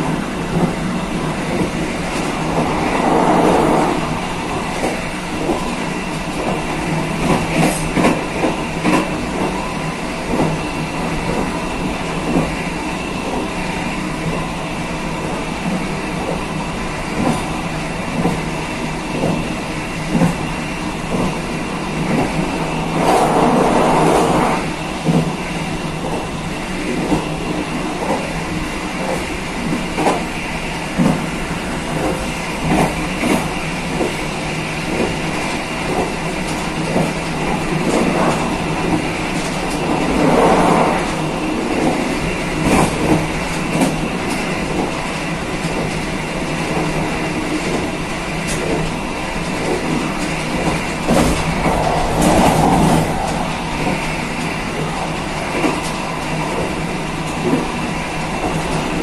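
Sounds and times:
train wheels rolling on rail: 0.0s - 59.0s.

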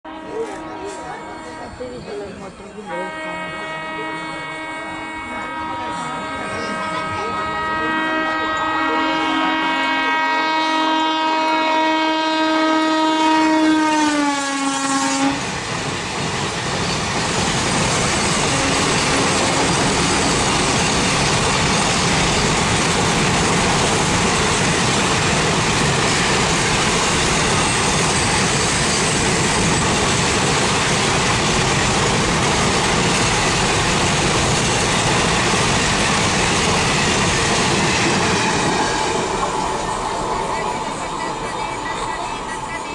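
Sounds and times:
locomotive horn blast: 0.0s - 1.8s, 2.9s - 15.5s, 18.4s - 20.9s
train wheels on rail: 0.2s - 42.9s.

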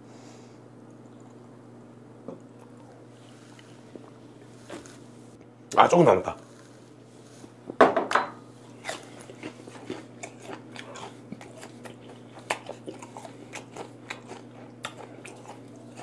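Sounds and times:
crunchy chewing: 2.4s - 5.2s, 6.4s - 7.6s, 8.6s - 16.0s.

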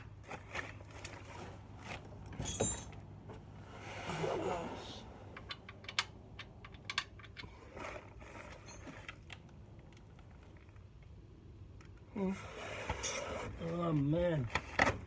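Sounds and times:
metal tools clicking and clinking: 2.4s - 3.0s.

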